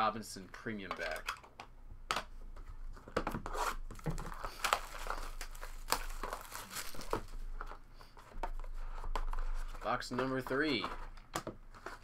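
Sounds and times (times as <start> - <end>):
plastic wrap crinkling and tearing: 3.5 - 7.8.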